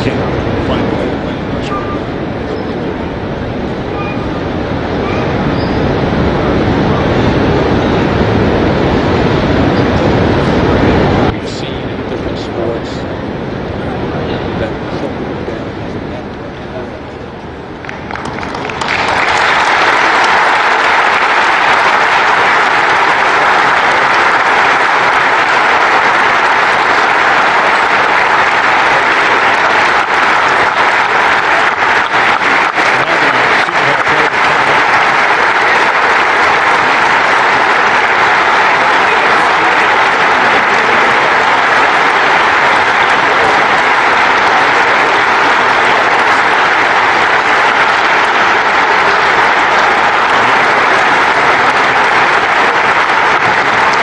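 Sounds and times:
crowd applauding: 0.0 - 13.0, 17.5 - 54.0
single hand claps: 17.8 - 54.0.

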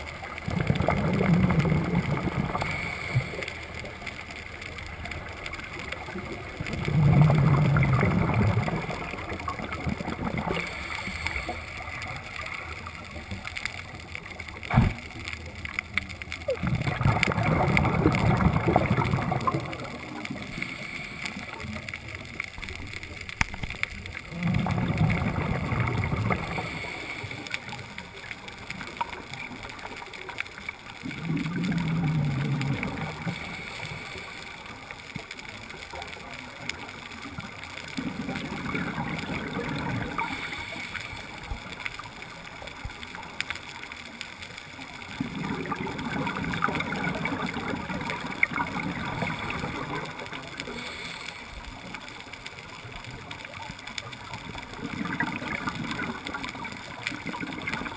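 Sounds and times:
gurgling rush of bubbles: 0.0 - 57.9
diver breathing through regulator: 50.6 - 51.6.

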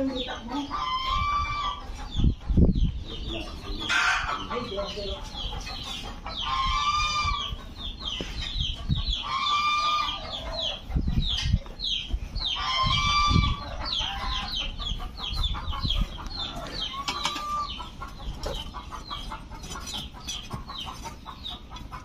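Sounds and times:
loud held poultry call: 0.0 - 22.0
short high poultry calls: 12.5 - 19.6.

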